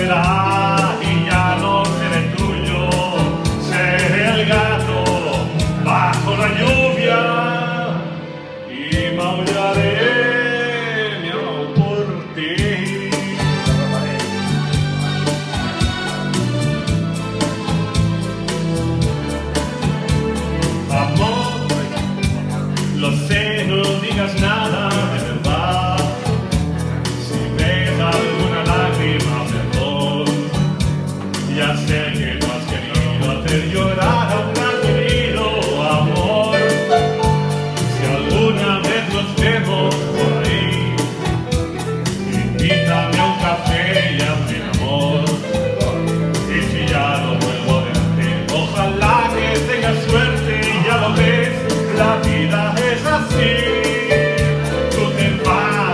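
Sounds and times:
man singing into a microphone: 0:00.0 - 0:15.6, 0:20.6 - 0:55.9
electric keyboard chords and bass: 0:00.0 - 0:55.9
steady beat: 0:12.6 - 0:55.9.

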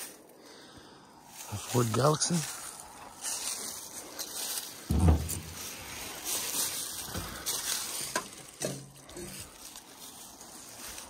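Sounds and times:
footsteps rustling through brush: 0:00.0 - 0:11.0
twigs crunching and cracking: 0:02.4 - 0:11.0.

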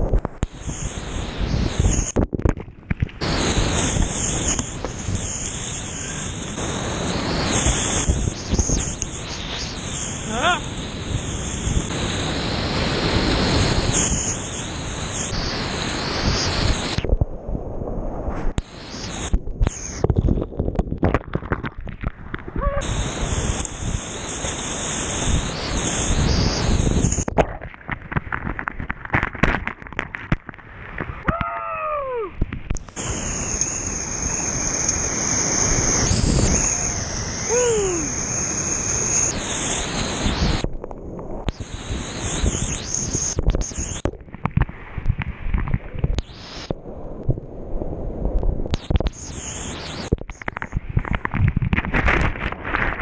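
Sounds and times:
whitewater rushing and crashing: 0:03.2 - 0:17.0, 0:22.7 - 0:27.2
gliding whistle-like tones: 0:33.0 - 0:40.6.

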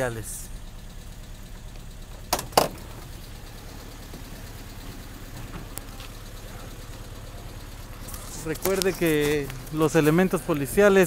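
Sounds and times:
car engine idling: 0:00.0 - 0:11.0
car door clacks: 0:02.1 - 0:03.1, 0:04.1 - 0:06.7.

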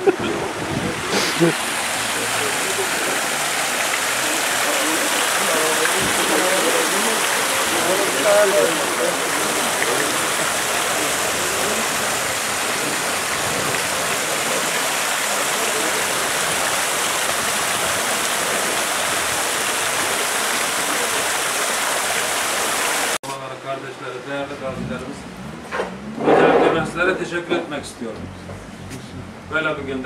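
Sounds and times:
fountain water splashing: 0:00.0 - 0:23.2.

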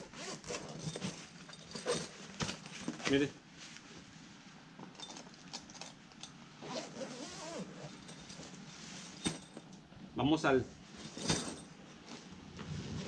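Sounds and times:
zippers: 0:00.0 - 0:02.2, 0:06.6 - 0:08.4
nylon backpack rustling: 0:00.0 - 0:03.0, 0:06.6 - 0:09.6.

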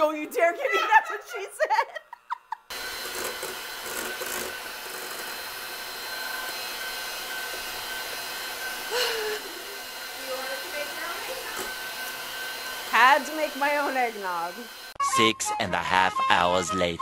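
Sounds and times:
electric hand mixer whisking: 0:02.7 - 0:15.0.

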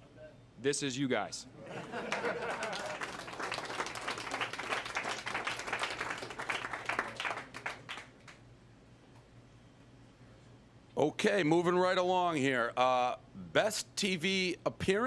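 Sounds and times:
audience applauding: 0:01.9 - 0:08.4.

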